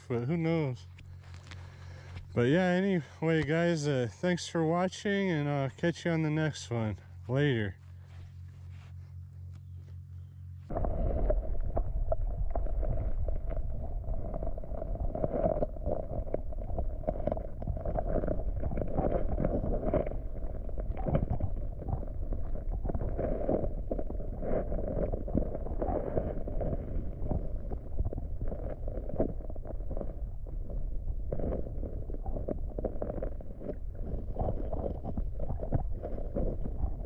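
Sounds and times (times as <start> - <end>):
muffled underwater river current: 10.4 - 37.0.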